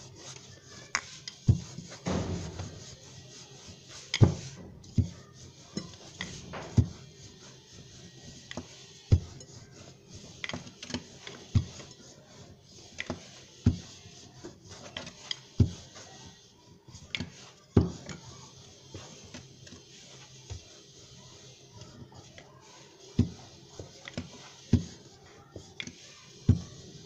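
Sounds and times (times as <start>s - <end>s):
rolling pin rolling dough: 0.0s - 27.0s
rolling pin knocking on board: 1.5s - 2.9s.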